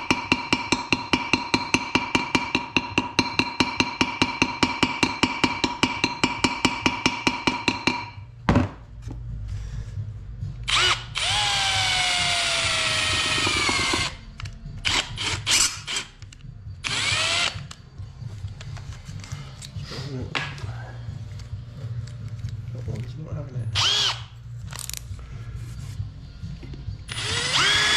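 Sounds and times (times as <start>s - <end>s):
hammer tapping on metal punch: 0.0s - 8.2s
cordless drill boring into metal: 10.7s - 14.2s, 16.8s - 17.7s, 23.8s - 24.2s, 27.1s - 27.9s.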